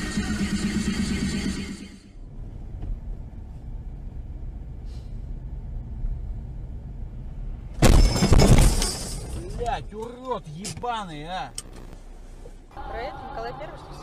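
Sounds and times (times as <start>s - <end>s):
car engine and tyres rumbling: 0.0s - 14.0s
car crash: 7.7s - 9.9s.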